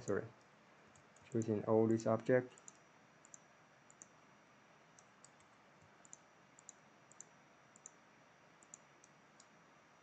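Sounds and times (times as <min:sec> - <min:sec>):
low steady hiss: 0:00.0 - 0:10.0
computer mouse clicks: 0:00.9 - 0:01.6, 0:02.2 - 0:04.2, 0:04.9 - 0:08.0, 0:08.6 - 0:09.6.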